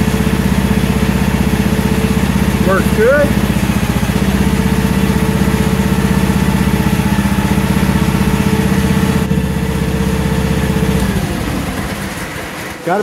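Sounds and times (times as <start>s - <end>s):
small engine idling: 0.0s - 13.0s.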